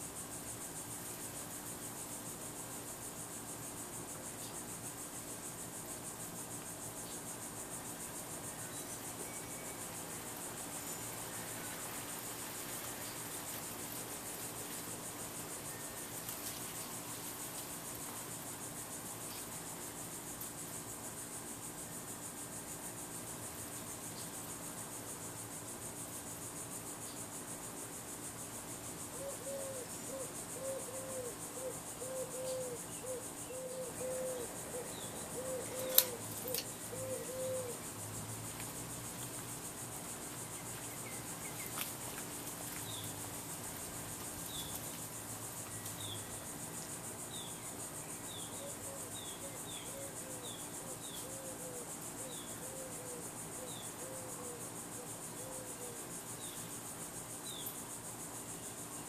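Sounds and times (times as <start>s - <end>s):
crickets chirping: 0.0s - 59.0s
sharp click: 35.8s - 36.7s.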